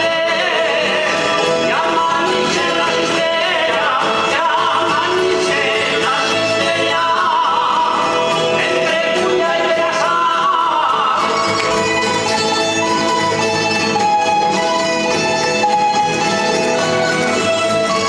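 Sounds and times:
person singing ornamented line: 0.0s - 12.3s
plucked string ensemble playing: 0.0s - 18.0s.

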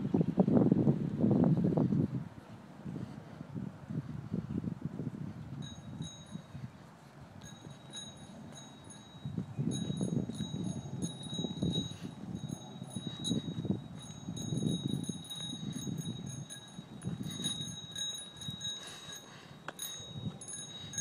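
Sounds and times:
wind buffeting microphone: 0.0s - 21.0s
faint metallic ringing: 5.5s - 21.0s.

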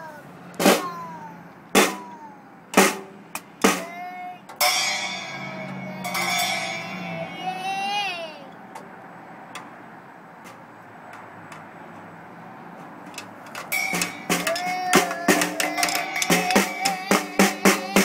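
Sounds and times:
toy drum hits: 1.8s - 2.2s, 2.8s - 7.0s, 13.2s - 18.0s
cymbal crashes: 4.6s - 7.2s.

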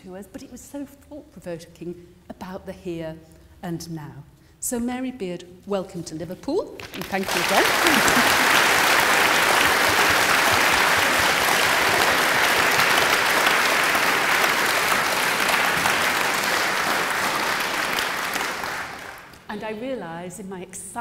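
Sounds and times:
audience applauding: 6.8s - 19.5s.

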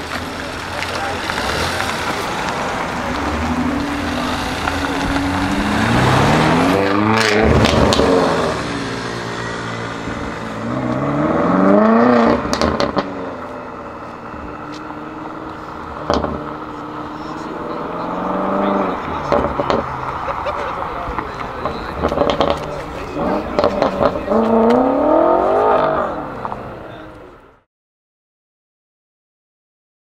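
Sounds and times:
exhaust crackles and pops: 0.0s - 8.8s, 10.4s - 25.0s
car engine revving hard: 0.1s - 20.6s, 21.6s - 27.1s.

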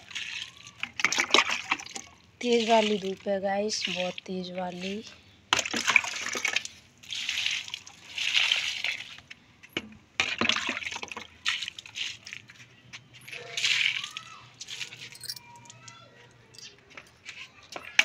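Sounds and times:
water splashing on concrete floor: 0.0s - 9.3s, 10.2s - 12.6s, 13.4s - 15.4s.

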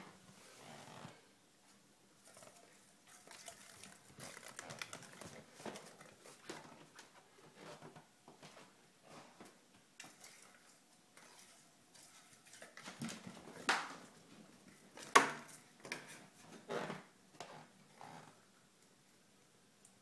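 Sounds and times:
kittens playing with toy on floor: 2.2s - 6.6s.

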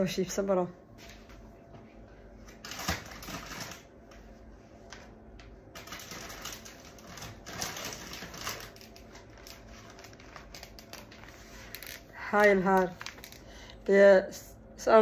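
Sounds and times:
food packaging rustling: 2.5s - 4.0s, 5.7s - 13.7s.

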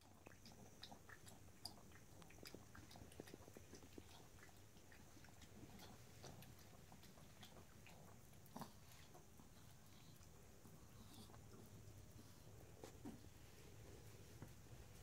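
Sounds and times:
dog lapping water: 0.0s - 9.9s.

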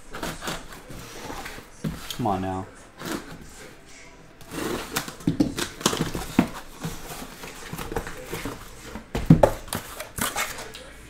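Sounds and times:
cardboard flaps scraping and rustling: 0.0s - 2.2s, 4.4s - 10.7s.

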